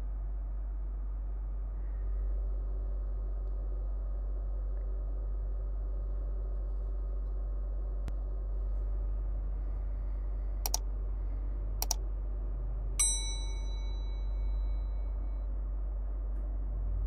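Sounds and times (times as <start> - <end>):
low hum: 0.0 - 17.0
bell notification ding: 13.0 - 14.5.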